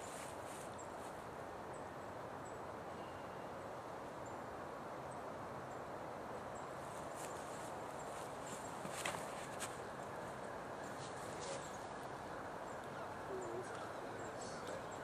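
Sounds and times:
footsteps rustling dry leaves: 0.0 - 1.2, 6.8 - 10.0
steady woodland hiss: 0.0 - 15.0.

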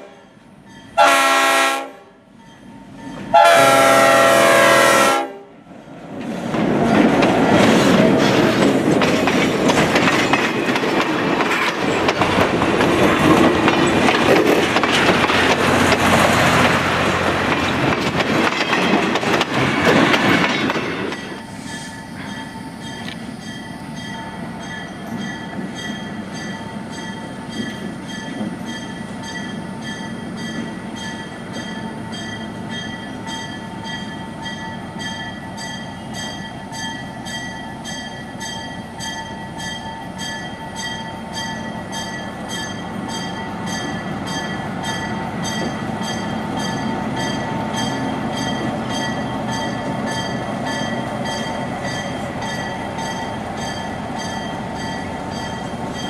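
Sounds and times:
locomotive bell ringing: 0.2 - 1.5, 2.3 - 4.3, 19.7 - 56.0.

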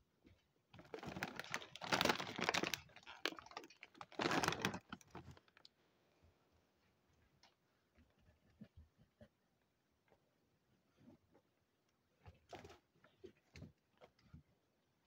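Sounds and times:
plastic bags rustling and crinkling: 0.8 - 5.7.

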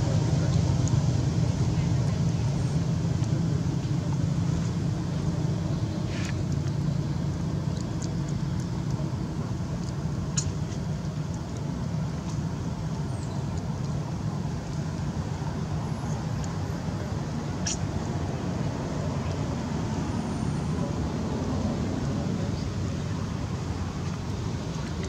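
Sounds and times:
distant traffic rumble: 0.0 - 25.0
faint clicks: 7.6 - 9.1.

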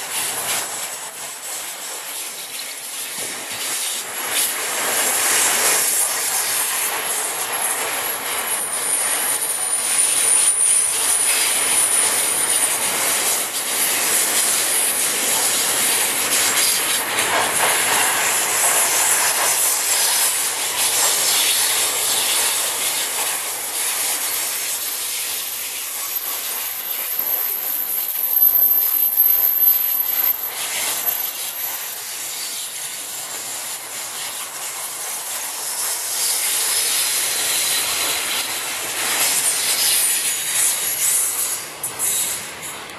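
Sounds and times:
steel wheels clattering on rail: 0.0 - 42.9
high flange squeal: 7.4 - 14.6, 21.2 - 33.9.

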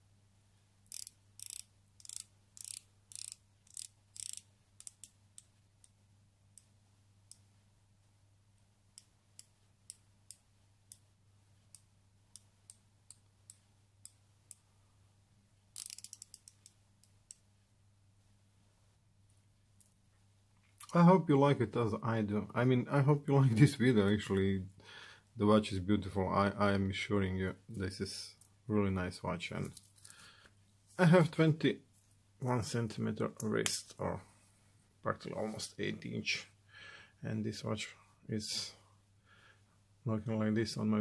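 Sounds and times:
watch bezel ratcheting clicks: 0.9 - 5.5, 15.8 - 16.8.

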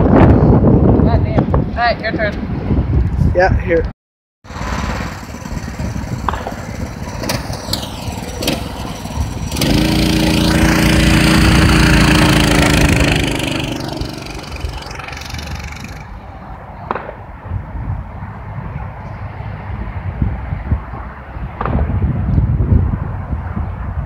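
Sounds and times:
mini bike engine revving: 4.5 - 16.3.

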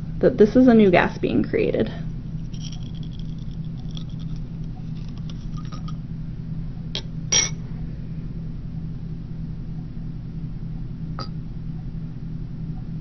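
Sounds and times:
low room hum: 0.0 - 13.0
glassy clink: 2.5 - 6.0.

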